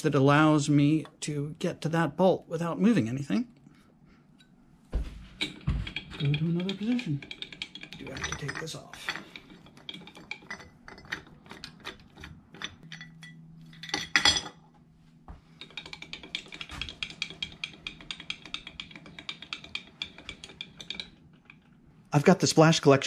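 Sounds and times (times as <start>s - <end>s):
metal clatter: 5.3s - 14.6s, 15.6s - 21.8s
hand crank metallic clicks: 5.4s - 12.8s.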